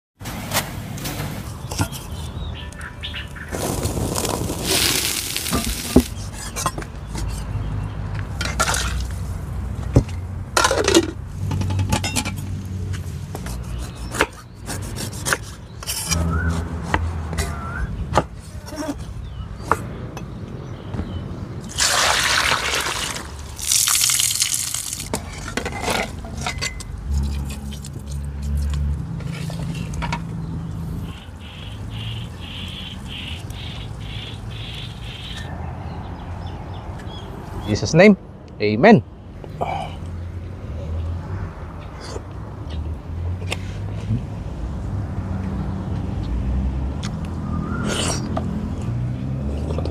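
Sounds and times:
water pouring: 3.6s - 6.2s, 21.7s - 25.1s.

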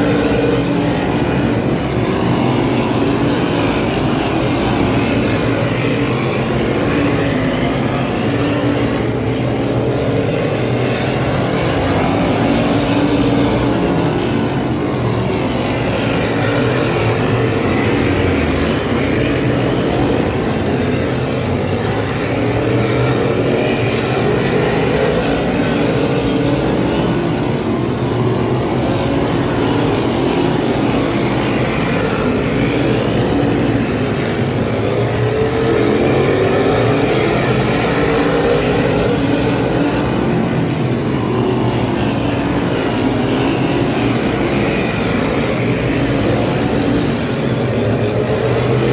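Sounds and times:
race car engines passing: 0.0s - 48.9s.

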